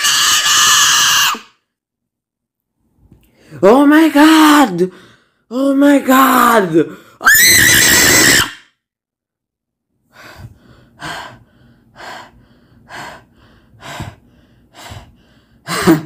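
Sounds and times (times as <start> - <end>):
person shrieking: 0.0 - 1.6, 7.2 - 8.6
heavy rapid breathing: 10.1 - 16.0.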